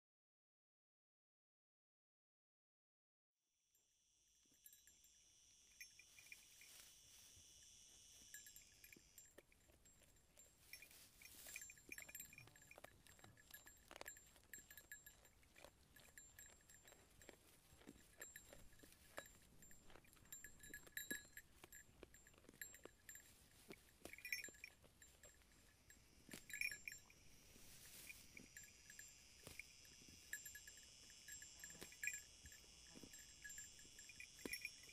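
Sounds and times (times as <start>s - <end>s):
faint high ringing: 3.6s - 34.9s
high tinkling tones: 3.7s - 34.9s
sheep biting off grass: 10.3s - 25.2s.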